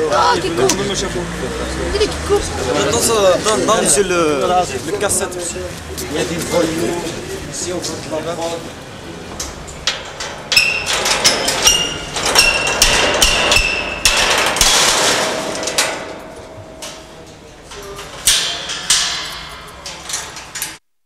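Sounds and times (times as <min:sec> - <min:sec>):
metal gate clanking and rattling: 0:09.2 - 0:20.8.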